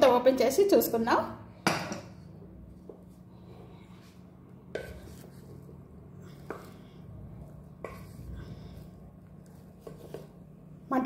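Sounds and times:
low steady hum: 0.0s - 11.0s
rice being stirred: 2.4s - 10.8s.

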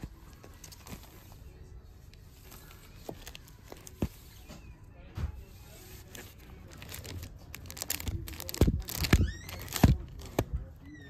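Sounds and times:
plastic sleeves crinkling: 0.0s - 4.5s, 5.5s - 10.6s
comic books clacking together: 6.7s - 10.6s.

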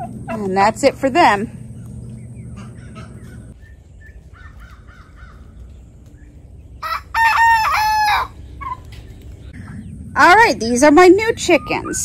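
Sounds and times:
rooster crowing: 6.8s - 8.8s.

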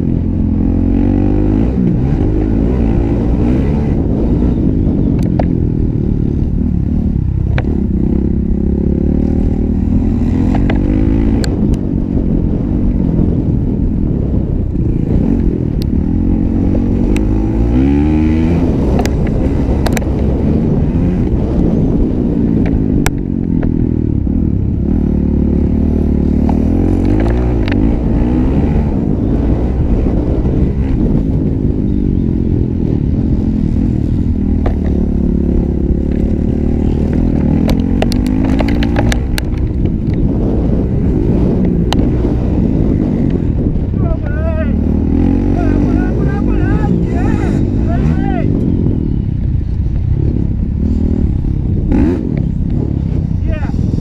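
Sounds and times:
motocross bike engine revving: 0.0s - 4.8s, 6.0s - 12.7s, 14.8s - 22.6s, 23.6s - 54.0s
sharp clicks: 19.0s - 20.2s, 37.0s - 40.2s.

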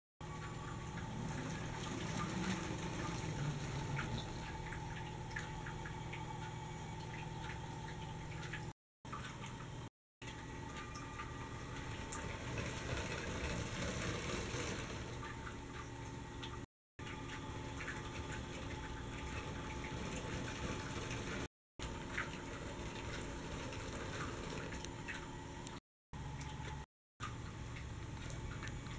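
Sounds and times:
wheels clicking over track joints: 1.0s - 4.6s, 11.7s - 15.4s, 19.3s - 21.5s, 22.2s - 25.1s
toy train motor whir: 12.4s - 15.2s.

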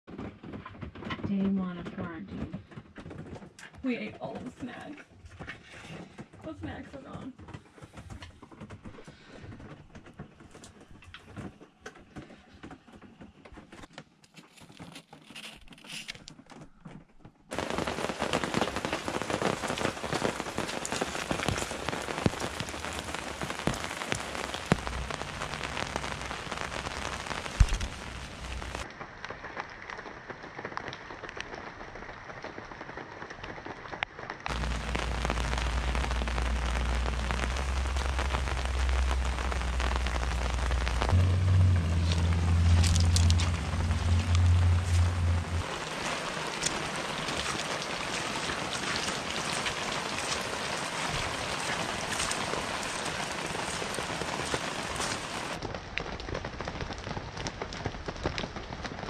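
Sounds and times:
rain on gravel: 17.5s - 59.0s
deep low rumble: 20.9s - 28.8s, 34.5s - 49.6s.

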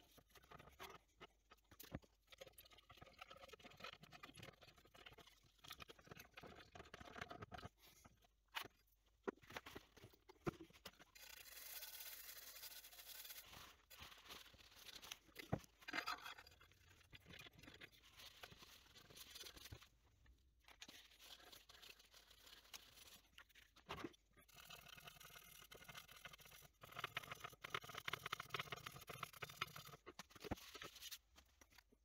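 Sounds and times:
tissue rubbing a circuit board: 11.2s - 15.3s.

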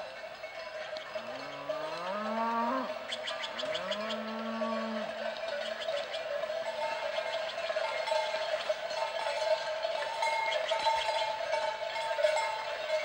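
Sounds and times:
cowbells clanking: 0.0s - 13.0s.

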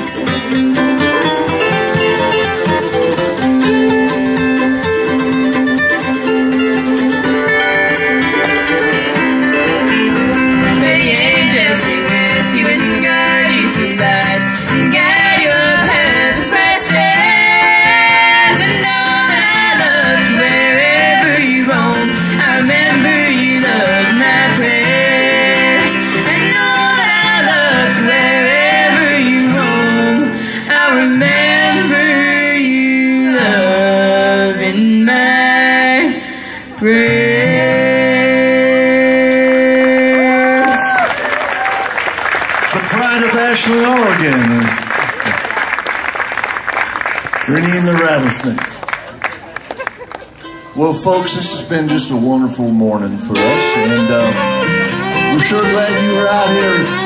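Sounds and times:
strummed acoustic guitar: 0.0s - 41.0s, 42.7s - 45.4s, 50.4s - 57.0s
bluegrass band playing: 0.0s - 57.0s.

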